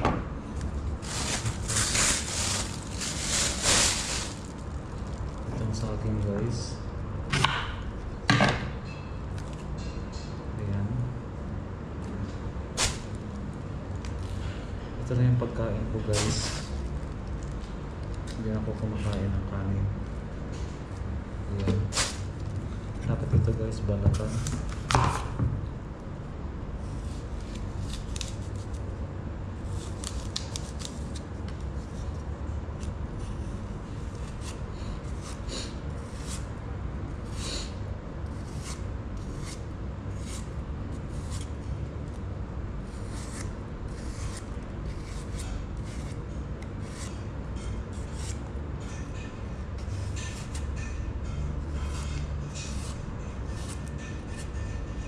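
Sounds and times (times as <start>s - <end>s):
low steady hum: 0.0s - 55.0s
knife peeling apple: 29.6s - 36.5s, 37.1s - 42.2s, 42.8s - 55.0s.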